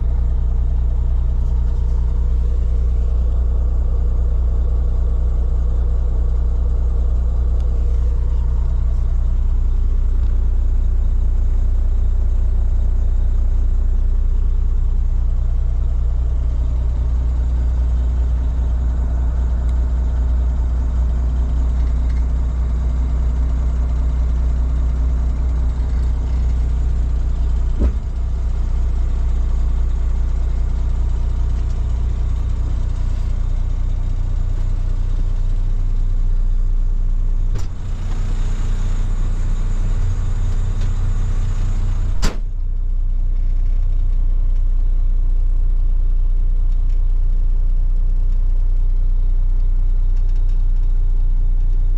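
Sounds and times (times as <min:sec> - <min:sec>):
diesel truck engine idling: 0:00.0 - 0:46.6
knocks: 0:27.8 - 0:28.1.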